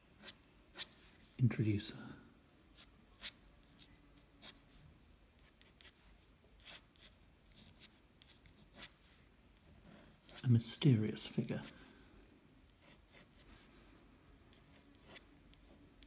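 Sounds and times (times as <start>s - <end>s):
pen scratching on paper: 0.2s - 1.0s, 5.4s - 6.0s, 6.6s - 10.4s, 12.7s - 13.7s, 14.5s - 16.0s.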